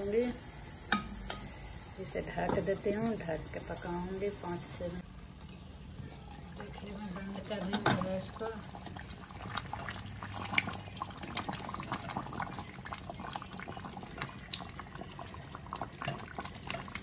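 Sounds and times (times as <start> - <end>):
thick gravy bubbling in a pot: 5.0 - 17.0.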